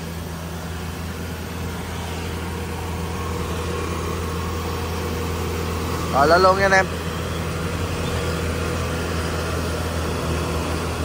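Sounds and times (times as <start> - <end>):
combine harvester engine idling: 0.0 - 11.0.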